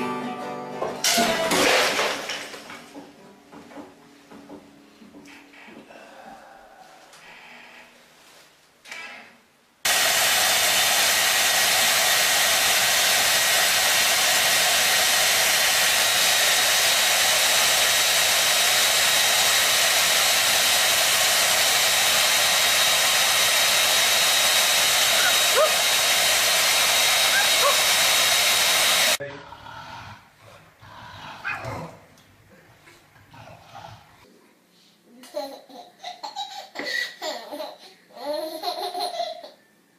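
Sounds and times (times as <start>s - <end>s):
small electric motor whining: 9.9s - 29.2s.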